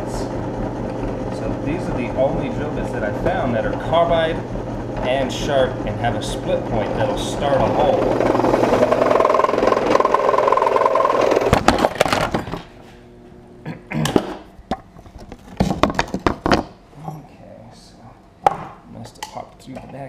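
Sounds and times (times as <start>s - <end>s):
drill press whining: 0.0s - 12.7s
loud metal clatter: 7.9s - 12.5s.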